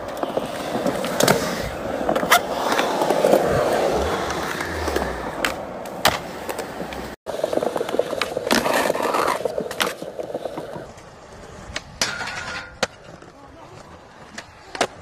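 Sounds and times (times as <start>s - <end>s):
skateboard clacking: 0.0s - 15.0s
skateboard scraping along ledge: 0.0s - 15.0s
skateboard wheels rolling on concrete: 0.0s - 15.0s.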